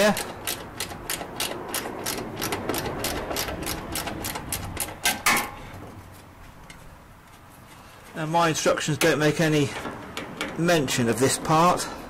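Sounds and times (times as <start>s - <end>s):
hand ratchet clicking: 0.0s - 5.4s.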